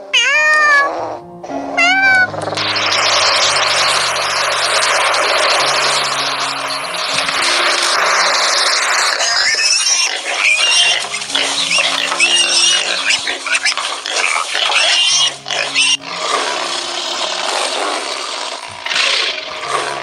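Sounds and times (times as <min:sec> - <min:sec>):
background music with low notes: 0:00.3 - 0:20.0
piglets squealing and grunting: 0:08.6 - 0:20.0.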